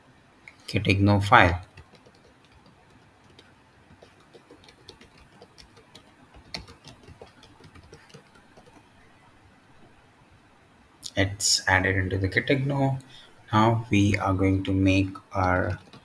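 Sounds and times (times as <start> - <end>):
keyboard keys clicking: 1.6 - 8.9, 15.2 - 16.0.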